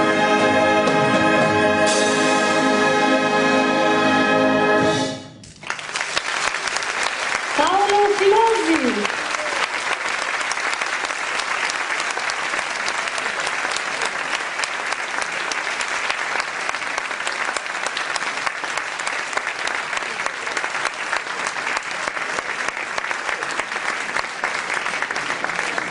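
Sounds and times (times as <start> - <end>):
audience applauding: 5.5 - 25.9.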